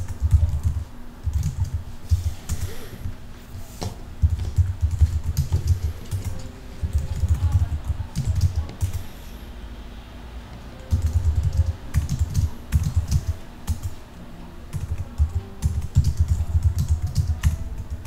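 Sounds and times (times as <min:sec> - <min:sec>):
typing on computer keyboard: 0:00.0 - 0:02.7, 0:04.2 - 0:09.0, 0:10.8 - 0:14.0, 0:14.7 - 0:18.0.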